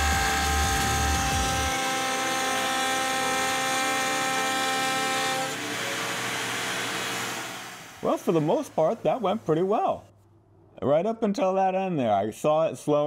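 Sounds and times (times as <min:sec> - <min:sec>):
router milling metal whine: 0:00.0 - 0:09.5.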